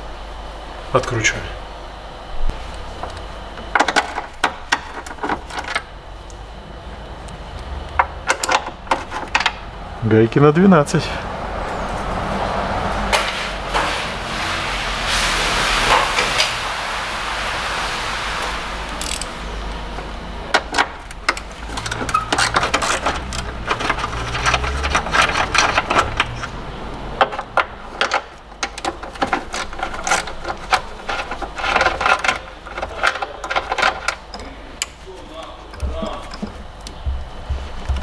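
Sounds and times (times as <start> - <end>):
hissy rushing noise: 12.9 - 19.9.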